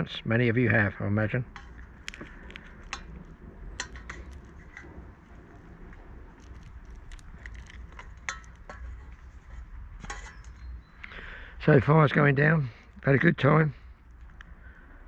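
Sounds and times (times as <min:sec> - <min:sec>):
shell bits ticking on metal pan: 0:01.5 - 0:04.4
chestnut shells cracking: 0:01.5 - 0:05.0, 0:05.7 - 0:09.1.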